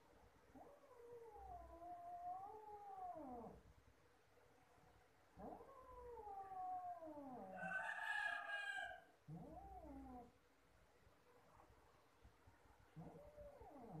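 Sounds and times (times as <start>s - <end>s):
cat yowling: 5.4s - 10.3s.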